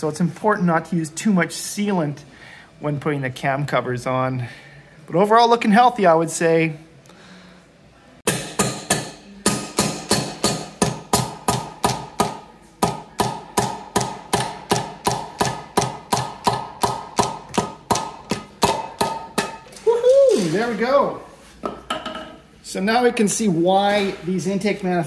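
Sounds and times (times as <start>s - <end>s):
mallet tapping on metal: 8.3s - 19.6s.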